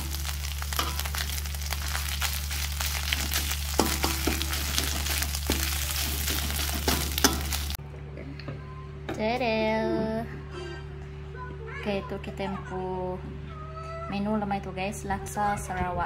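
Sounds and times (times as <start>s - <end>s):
metal spatula scraping wok: 0.0s - 7.8s
paste sizzling in a wok: 0.0s - 7.8s.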